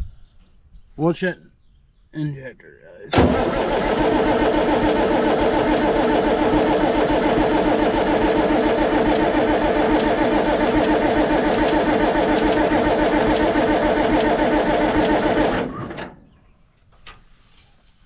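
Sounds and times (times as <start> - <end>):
diesel engine cranking on starter: 3.1 - 16.2.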